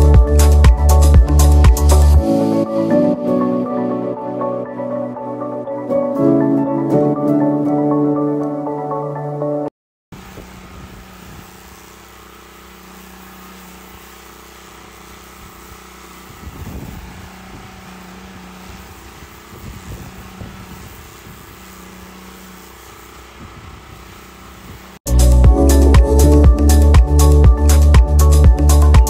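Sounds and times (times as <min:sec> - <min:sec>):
water spray hissing: 0:00.0 - 0:03.5, 0:10.2 - 0:29.0
pressure washer drone: 0:00.0 - 0:07.1, 0:10.1 - 0:29.0
wind rumble on microphone: 0:10.2 - 0:11.6, 0:16.2 - 0:21.7, 0:23.2 - 0:25.5.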